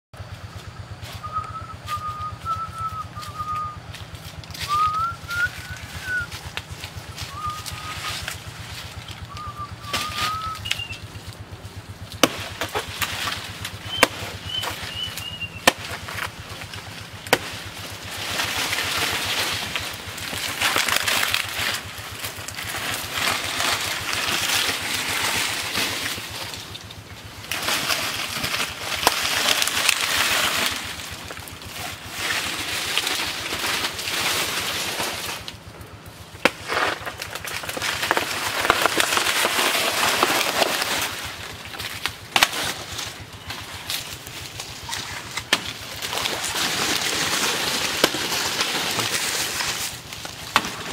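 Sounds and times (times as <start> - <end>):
dry leaves rustling: 0.2 - 50.9
machete chopping plant: 2.9 - 11.0, 12.0 - 35.6, 36.4 - 50.9
bird chirping: 9.0 - 11.2, 13.8 - 15.7.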